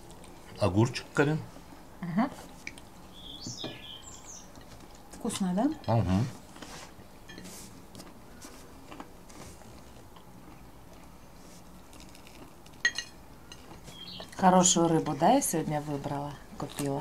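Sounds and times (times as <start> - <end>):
faint chewing: 0.0 - 1.2, 2.3 - 3.1, 6.4 - 14.5.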